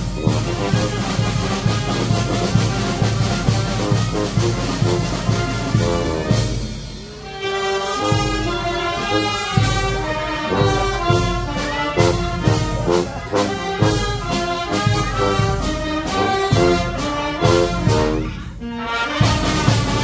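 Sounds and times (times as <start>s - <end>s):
bass drum and cymbals beat: 0.0s - 7.3s, 13.8s - 18.4s
brass band playing dance music: 0.0s - 20.0s.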